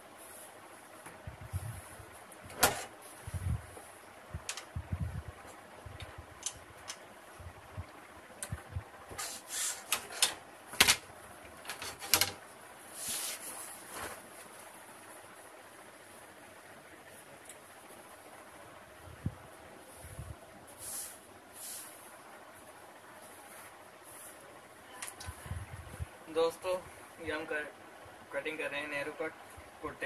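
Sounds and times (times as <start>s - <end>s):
fabric swishing: 1.2s - 2.2s.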